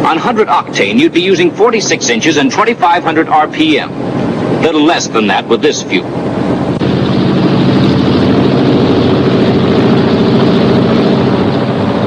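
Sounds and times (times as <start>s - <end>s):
aircraft engines and propellers droning: 0.0s - 12.0s.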